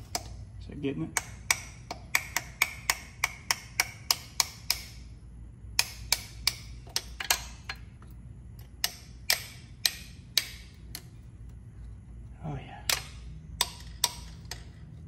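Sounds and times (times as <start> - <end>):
metallic clicks of hand tools: 0.0 - 0.4, 1.1 - 5.0, 5.8 - 11.2, 12.8 - 15.0.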